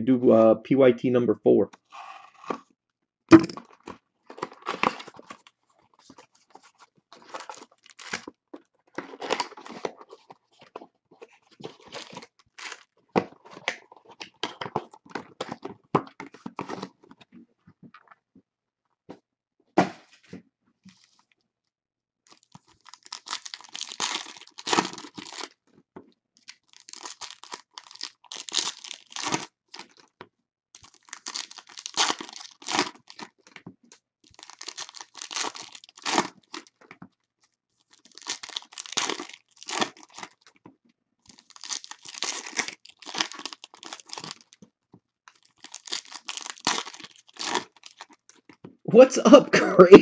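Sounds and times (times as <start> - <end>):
foil wrappers crinkling and tearing: 4.3 - 8.3, 9.0 - 15.7, 22.3 - 25.6, 26.5 - 30.1, 30.8 - 33.6, 34.2 - 36.9, 37.8 - 40.6, 41.3 - 44.6, 45.3 - 48.6.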